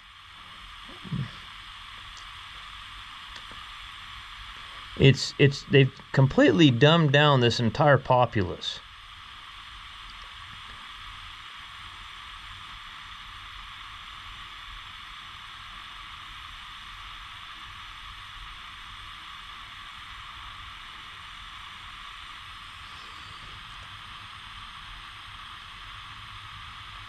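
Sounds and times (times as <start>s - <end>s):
gas torch flame hissing: 0.0s - 27.0s.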